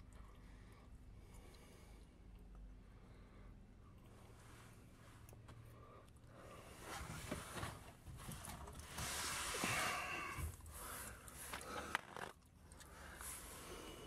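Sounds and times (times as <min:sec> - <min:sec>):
rustling and scraping handling: 0:06.7 - 0:12.5.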